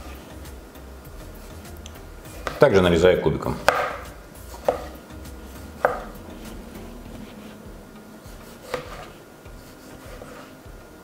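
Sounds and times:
knife knocking on cutting board: 3.6s - 5.0s, 5.8s - 6.2s.

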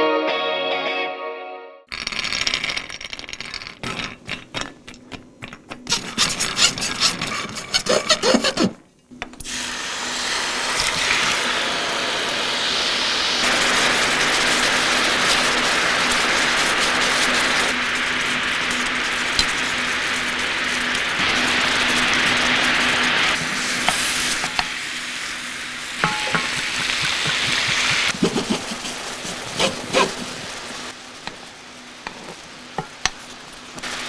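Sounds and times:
nuts rattling in a pan: 1.9s - 4.7s
hot pan sizzling: 1.9s - 8.8s, 9.4s - 34.0s.

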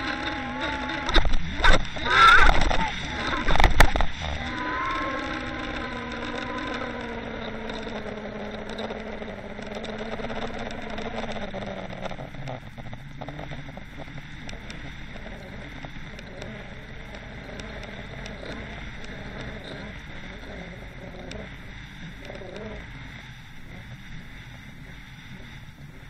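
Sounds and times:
water rushing: 0.0s - 8.1s
boat engine drone underwater: 0.0s - 26.0s.

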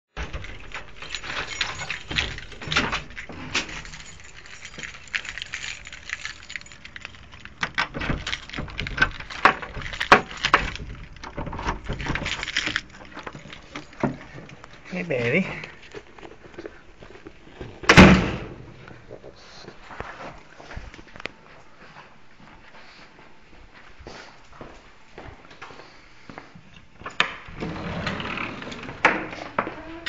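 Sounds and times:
metallic clicks of locks: 0.2s - 14.7s
keys jangling: 0.2s - 17.2s.

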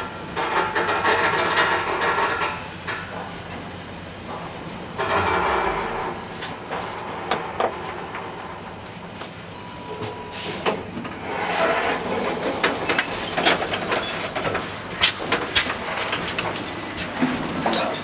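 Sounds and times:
street noise: 2.8s - 17.7s
door squeal: 5.0s - 6.4s
automatic sliding doors opening: 5.0s - 7.6s, 10.4s - 14.7s.

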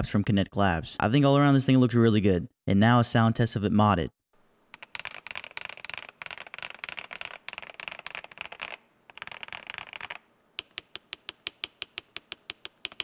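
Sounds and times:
fast typing on mechanical keyboard: 4.8s - 13.0s.

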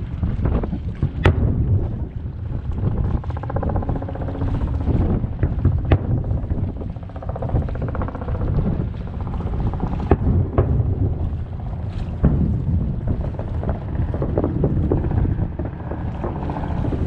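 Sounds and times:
wind rumble on microphone: 0.0s - 17.0s
distant firework bangs: 9.9s - 17.0s.

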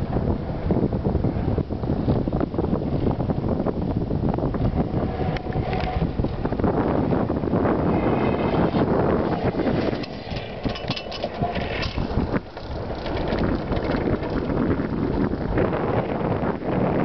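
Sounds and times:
wind buffeting microphone: 0.0s - 17.0s
runners scraping on ice: 8.2s - 15.4s.

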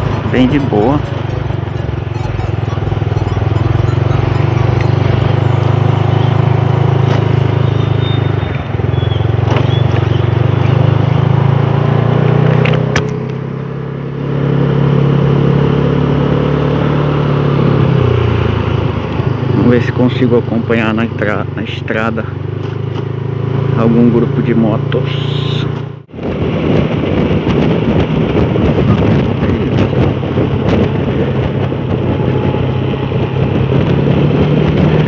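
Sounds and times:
scooter engine running: 0.0s - 35.0s
wind rushing: 26.1s - 35.0s.

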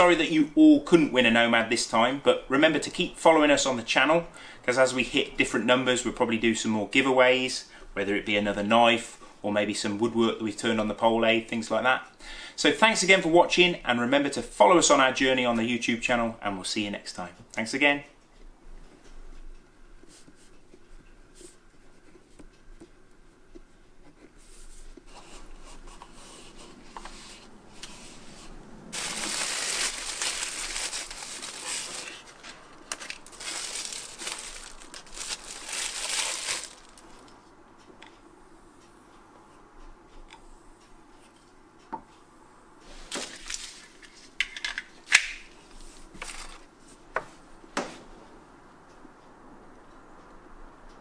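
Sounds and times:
tissue paper crinkling: 28.9s - 37.2s, 43.1s - 44.0s.

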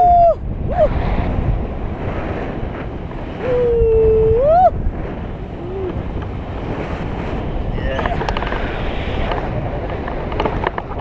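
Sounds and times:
person crying out: 0.0s - 0.9s, 3.4s - 4.7s
wind rushing over microphone: 0.0s - 11.0s.

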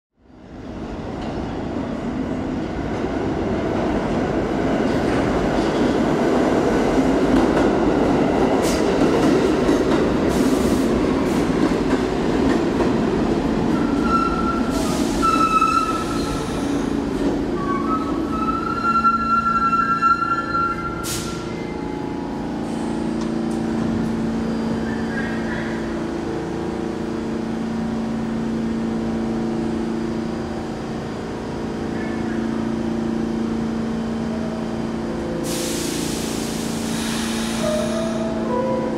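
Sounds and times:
train low hum: 0.2s - 38.9s
train wheels rumbling on rails: 0.9s - 20.0s
air hiss: 35.4s - 38.4s.

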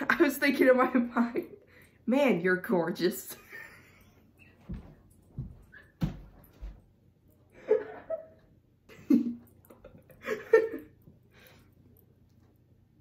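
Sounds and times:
embarrassed laughter: 7.6s - 11.0s.

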